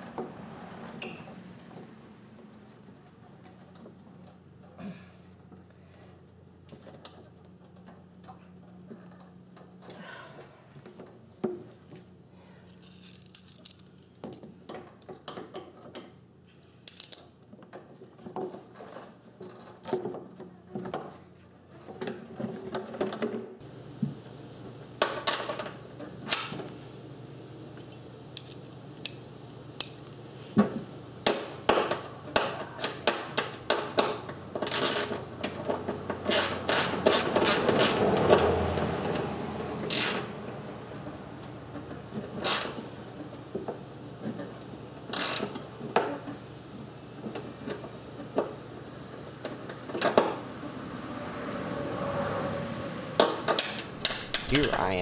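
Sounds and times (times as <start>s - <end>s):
hand tools clicking and knocking: 53.2s - 54.8s.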